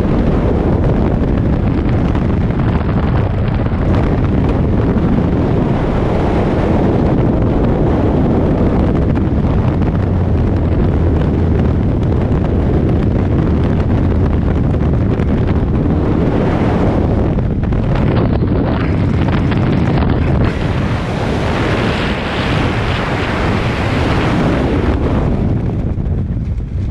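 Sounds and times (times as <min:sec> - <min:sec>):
wind buffeting microphone: 0:00.0 - 0:26.9.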